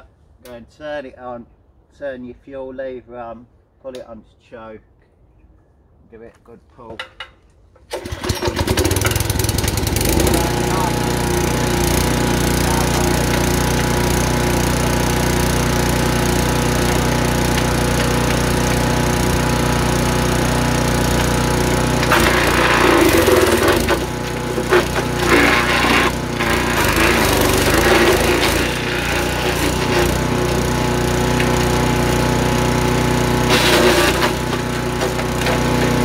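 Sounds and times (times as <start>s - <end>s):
wood chipper engine running: 7.9s - 36.0s.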